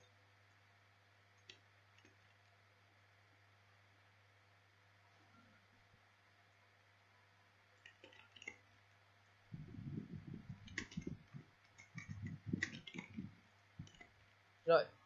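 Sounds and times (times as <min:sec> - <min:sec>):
keyboard typing: 0:07.8 - 0:08.7, 0:09.6 - 0:14.2.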